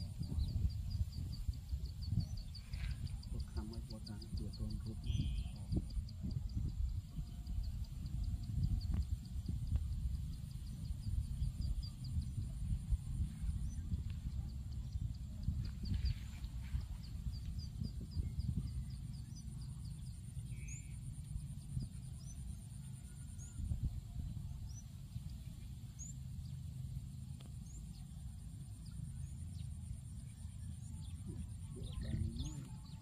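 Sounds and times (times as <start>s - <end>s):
wind buffeting microphone: 0.0s - 22.5s, 23.3s - 26.1s
faint high whine: 0.0s - 33.0s.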